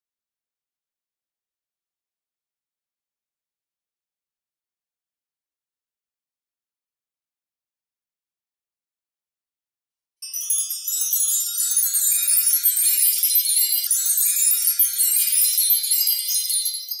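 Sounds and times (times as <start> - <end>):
tinkling bell-like chimes: 10.2 - 17.0.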